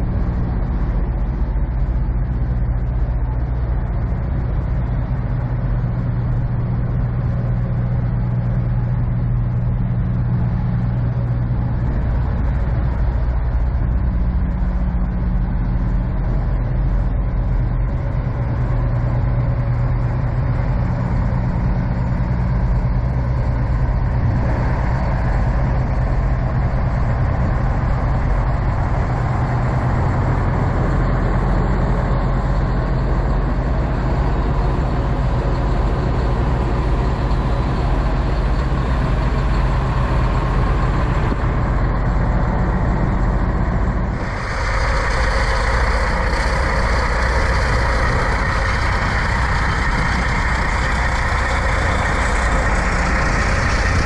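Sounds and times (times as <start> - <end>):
diesel truck engine idling: 0.0 - 54.0.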